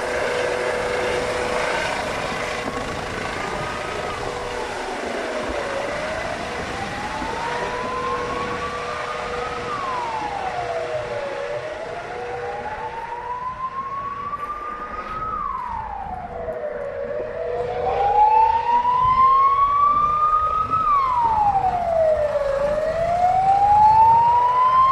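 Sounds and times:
emergency vehicle siren wailing: 0:00.0 - 0:24.9.

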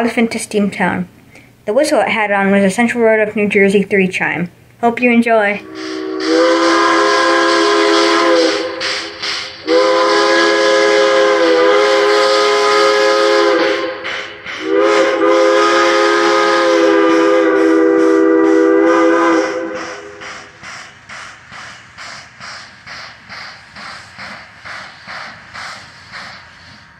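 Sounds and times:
steam whistle blasts: 0:05.6 - 0:20.6
locomotive exhaust chuffing: 0:05.7 - 0:26.9.

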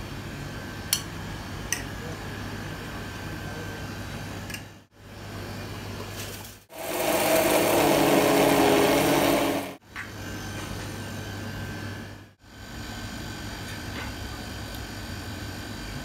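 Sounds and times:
electric blender running: 0:06.7 - 0:09.8.

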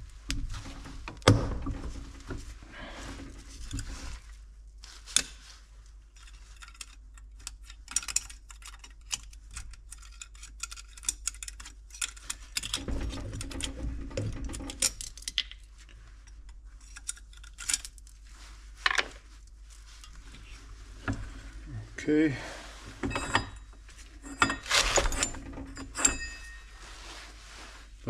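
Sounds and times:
metal rod scraping in metal ports: 0:23.0 - 0:26.7.

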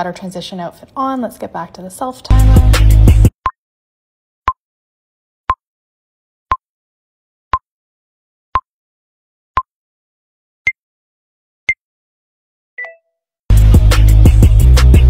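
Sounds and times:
short electronic beeps: 0:12.8 - 0:13.1.

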